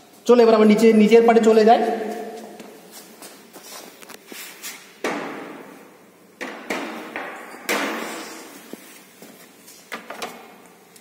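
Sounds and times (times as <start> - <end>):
refrigerator parts knocking and banging: 5.0 - 5.7, 6.4 - 8.5.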